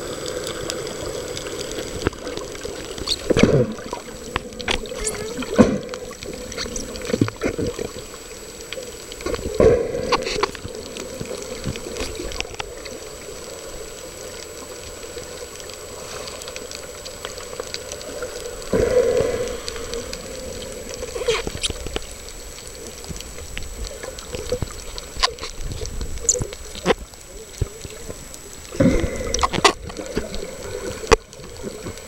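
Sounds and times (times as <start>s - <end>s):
muffled underwater wash: 0.0s - 32.0s
muffled water surges: 0.0s - 32.0s
sharp underwater clicks: 0.2s - 13.6s, 14.3s - 32.0s.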